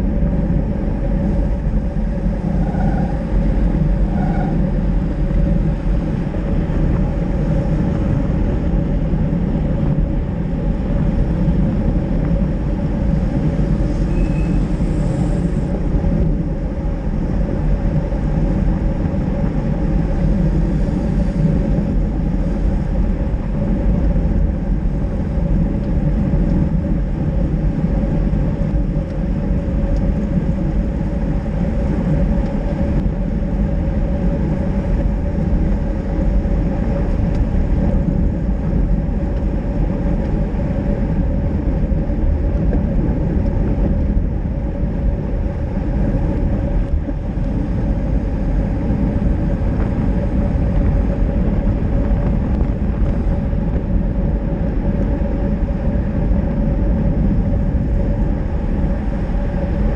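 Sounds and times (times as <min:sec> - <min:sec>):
wind rush on microphone: 0:00.0 - 0:59.9
bike tyres hissing on wet asphalt: 0:12.8 - 0:15.9.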